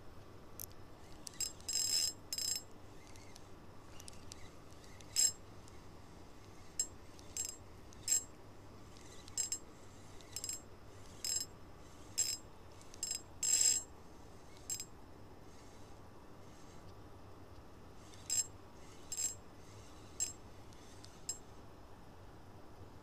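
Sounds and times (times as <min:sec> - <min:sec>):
fishing reel drag buzzing: 0:01.0 - 0:05.4, 0:06.5 - 0:08.3, 0:08.9 - 0:14.9, 0:18.0 - 0:21.4.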